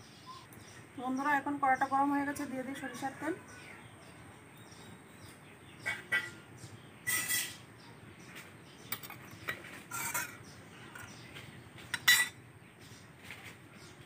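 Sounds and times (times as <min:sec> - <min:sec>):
metal cookware clinking and scraping: 0:05.8 - 0:06.4, 0:07.0 - 0:07.6, 0:08.9 - 0:11.2, 0:11.9 - 0:12.4.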